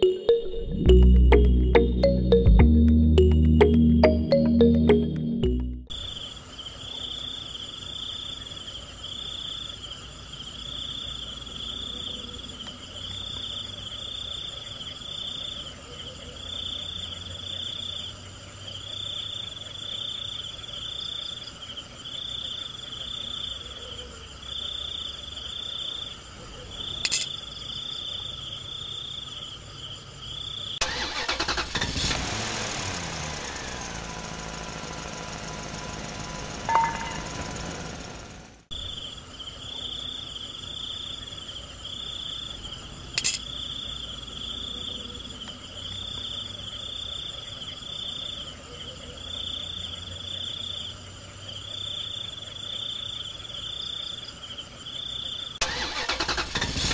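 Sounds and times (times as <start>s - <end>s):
high chirp: 0.0s - 5.9s
low engine rumble: 32.8s - 38.8s.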